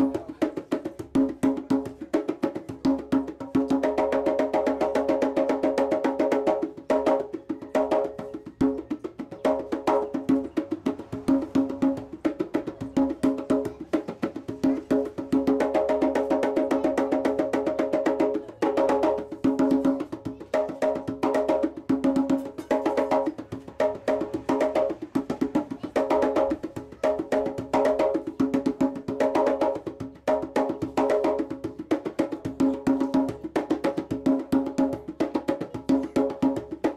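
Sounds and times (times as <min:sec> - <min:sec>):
djembe played by hand: 0:00.0 - 0:36.9.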